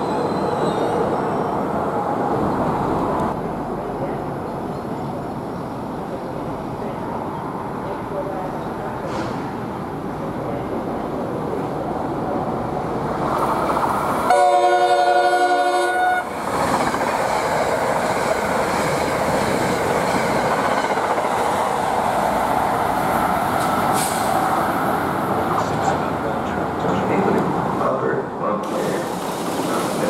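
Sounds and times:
train air horn blast: 0:14.3 - 0:16.3.

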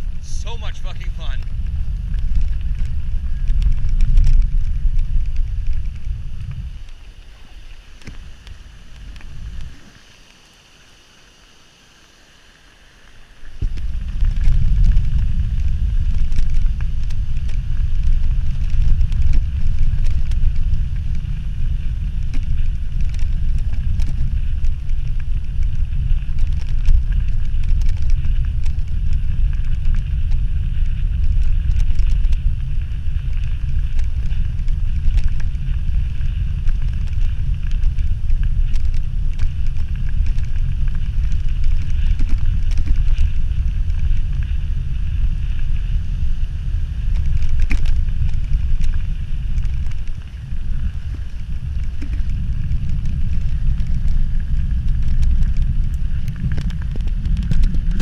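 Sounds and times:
bike rattling and clicking: 0:00.0 - 0:09.9, 0:13.4 - 0:58.0
wind buffeting microphone: 0:00.0 - 0:10.2, 0:13.3 - 0:58.0
faint river rushing: 0:05.6 - 0:16.7.

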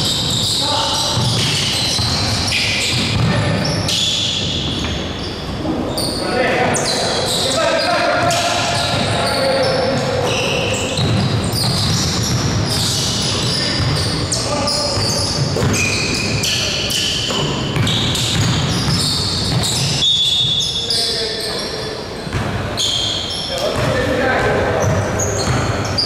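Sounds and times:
basketball bouncing on court: 0:00.0 - 0:05.1, 0:08.1 - 0:20.7, 0:22.3 - 0:22.9, 0:23.6 - 0:26.0
sneakers squeaking: 0:00.0 - 0:26.0.

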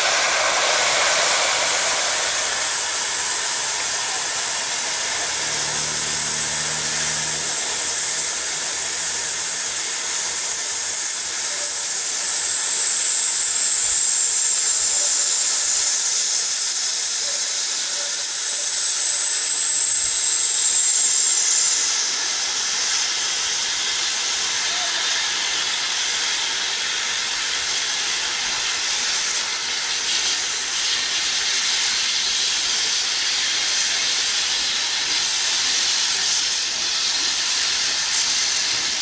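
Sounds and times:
thin high whistling tone: 0:00.0 - 0:21.5
steam hissing from locomotive: 0:00.0 - 0:39.0.

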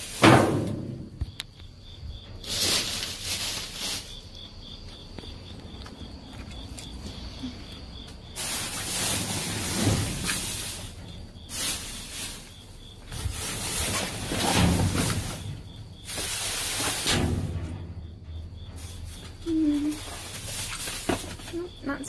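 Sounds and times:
plastic bags rustling: 0:00.0 - 0:00.8, 0:02.3 - 0:17.5, 0:18.8 - 0:22.0
faint insect chirping: 0:00.0 - 0:22.0.

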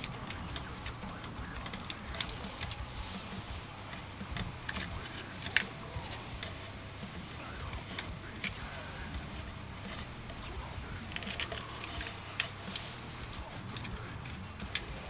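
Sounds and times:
screwdriver clicks and taps: 0:03.9 - 0:06.5.

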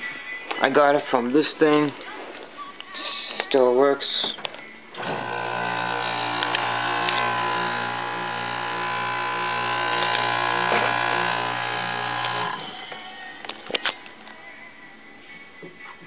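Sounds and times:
dehumidifier humming and buzzing: 0:05.0 - 0:13.4.

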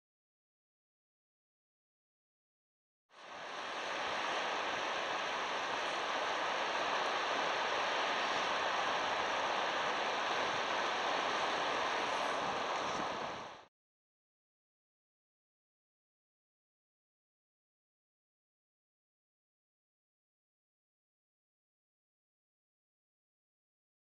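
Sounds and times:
wind: 0:03.1 - 0:13.7
surf: 0:03.2 - 0:13.7.

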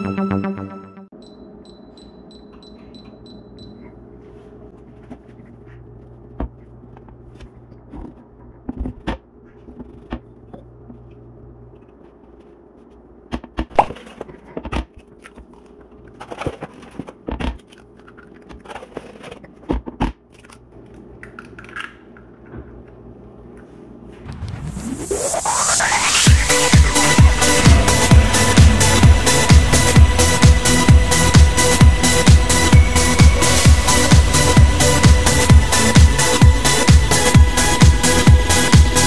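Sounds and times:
short high beeps: 0:01.2 - 0:03.9
steady low hum: 0:22.0 - 0:39.0.

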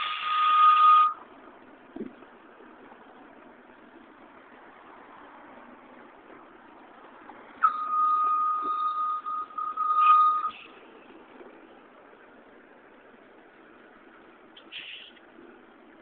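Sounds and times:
bus engine running: 0:00.0 - 0:16.0
high electronic warning beep: 0:07.6 - 0:10.7.

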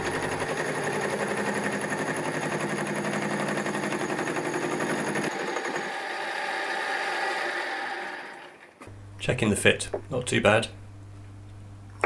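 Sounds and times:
milling machine running: 0:00.0 - 0:08.8.

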